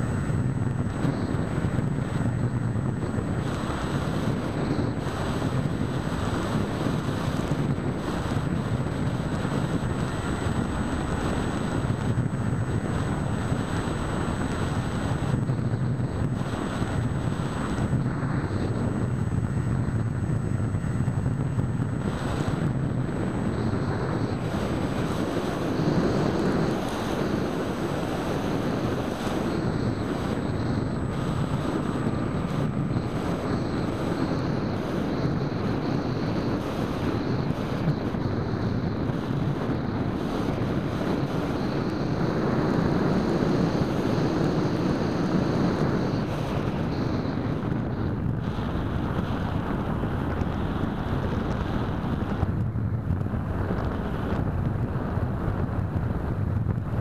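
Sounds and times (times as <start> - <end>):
electric motor and propeller drone: 0.0 - 57.0
rush of airflow: 0.0 - 57.0.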